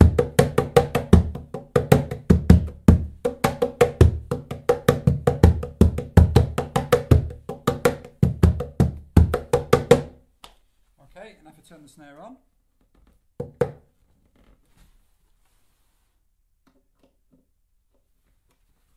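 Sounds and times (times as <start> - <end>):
cajon played by hand: 0.0 - 10.2.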